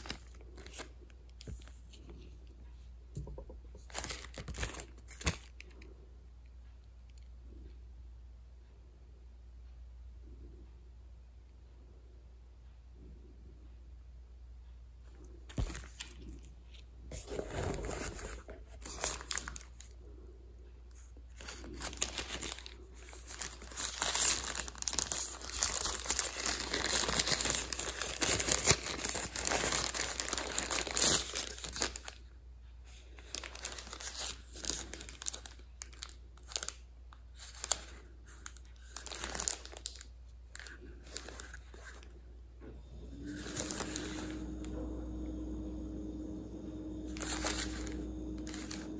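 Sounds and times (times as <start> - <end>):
packaging crinkling and tearing: 0.0 - 1.8, 3.8 - 5.8, 17.2 - 19.9, 21.3 - 32.3, 33.0 - 42.1, 43.1 - 48.9.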